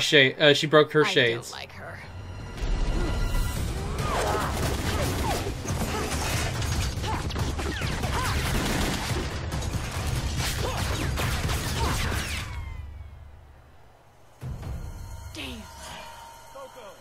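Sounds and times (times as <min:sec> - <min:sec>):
bangs and impacts: 0:03.4 - 0:12.6.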